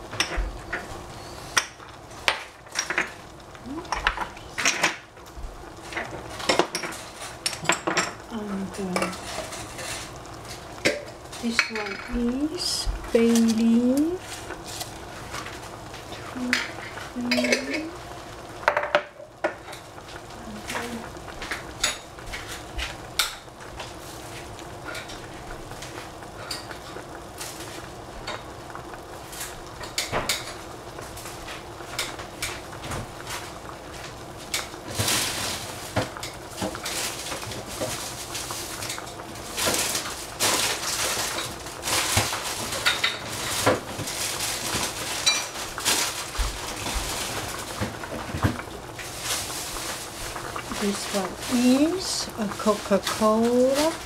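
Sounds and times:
kitchenware clinking and knocking: 7.5 - 8.2.

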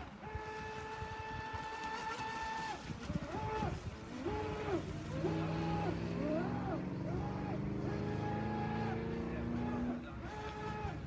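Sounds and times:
electric boat motor whining: 3.3 - 11.0.

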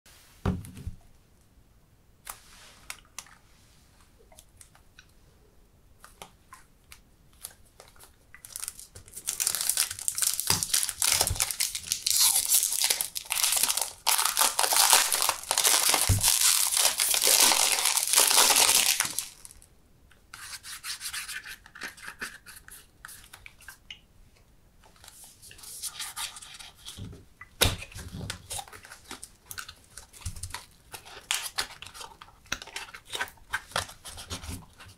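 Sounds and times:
cellophane crinkling and tearing: 7.4 - 19.7, 27.8 - 34.9.

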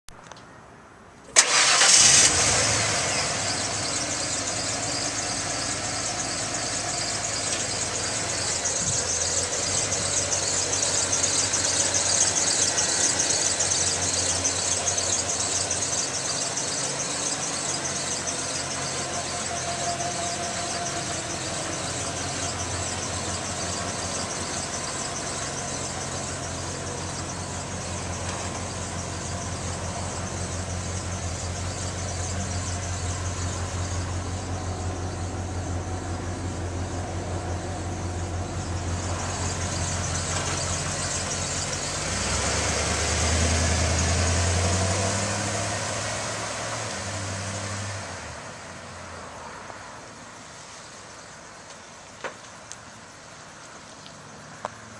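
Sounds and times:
engine starting and idling: 1.3 - 31.4.

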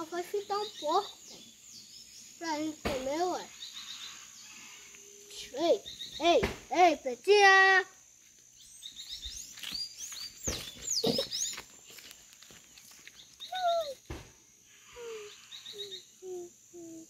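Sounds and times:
birds chirping: 0.0 - 17.0
dog whining and whimpering: 13.5 - 14.1.

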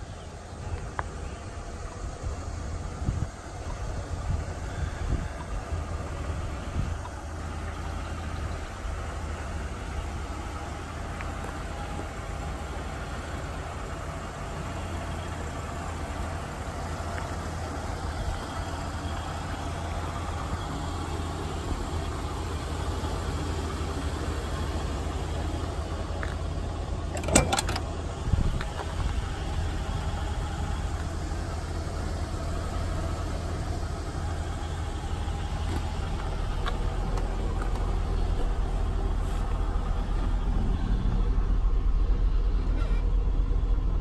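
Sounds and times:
truck engine idling: 0.0 - 44.0
car door clicks: 27.1 - 27.9.

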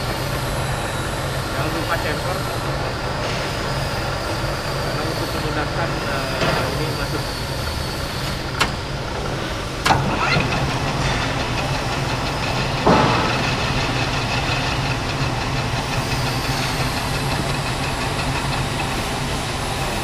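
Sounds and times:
lathe running with machine hum: 0.0 - 20.0
lathe clunk: 6.3 - 7.2, 8.3 - 18.8.

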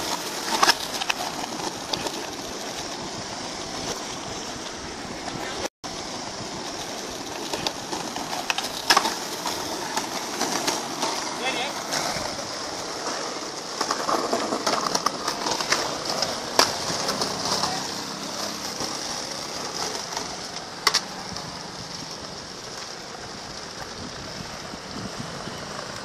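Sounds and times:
skateboard sharp clacks: 0.0 - 3.0, 6.7 - 24.0
skateboard wheels rolling on stone: 0.0 - 26.0.

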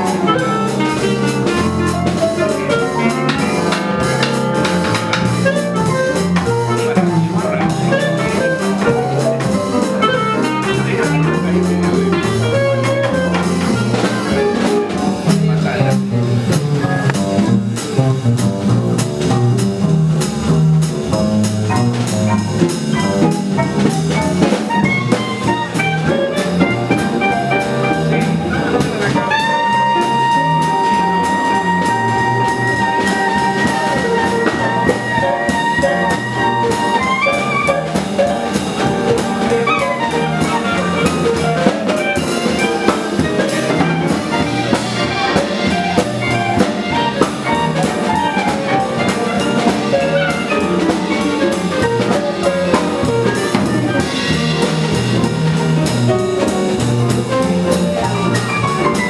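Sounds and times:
clarinet: 0.0 - 19.4, 21.1 - 59.0
drums on cymbals: 0.0 - 59.0
guitar: 0.0 - 59.0
piano: 0.0 - 59.0
walking double bass: 0.0 - 59.0.

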